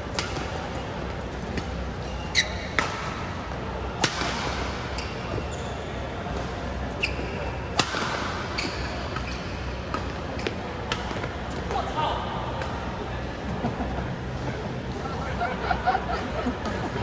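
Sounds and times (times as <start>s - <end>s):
court shoes squeaking: 0.0s - 11.9s
racket striking shuttlecock: 0.1s - 0.6s, 1.5s - 3.2s, 4.0s - 4.8s, 7.7s - 8.4s.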